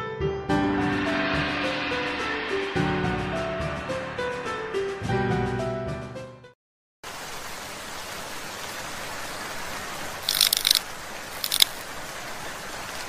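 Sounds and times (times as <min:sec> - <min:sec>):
steady static hiss: 0:10.0 - 0:13.0
bright crackling bursts: 0:10.2 - 0:11.8.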